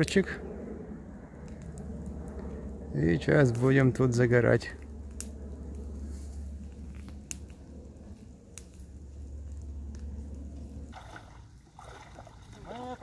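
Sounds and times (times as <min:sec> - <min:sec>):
campfire crackling: 0:00.0 - 0:13.0
low rumble: 0:00.0 - 0:13.0
fire pops: 0:04.8 - 0:10.6.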